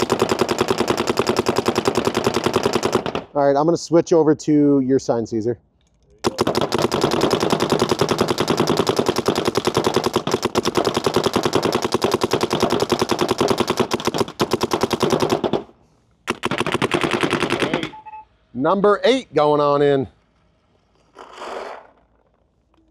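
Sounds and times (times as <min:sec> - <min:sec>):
paintball marker firing rapidly: 0:00.0 - 0:03.3, 0:06.2 - 0:15.7, 0:16.3 - 0:18.0.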